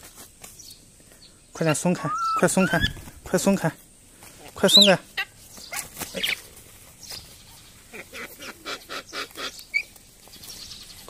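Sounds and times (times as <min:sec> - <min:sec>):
high bird chirp: 0:00.6 - 0:03.0
short bird calls: 0:01.2 - 0:03.2
wing-flapping scuffles: 0:02.7 - 0:03.4, 0:05.4 - 0:07.4.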